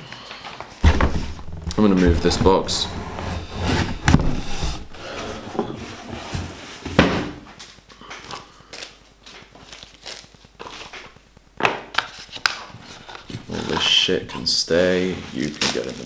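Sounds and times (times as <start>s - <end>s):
objects knocking on wooden table: 0.8s - 5.7s.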